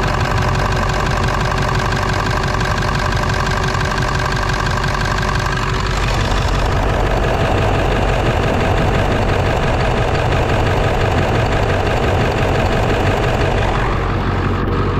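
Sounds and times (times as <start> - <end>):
diesel engine idling: 0.0 - 14.9.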